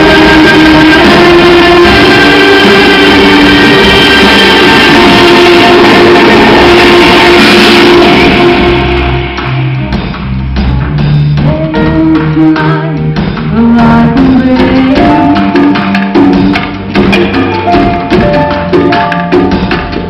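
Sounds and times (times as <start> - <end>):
live band playing: 0.0 - 20.0.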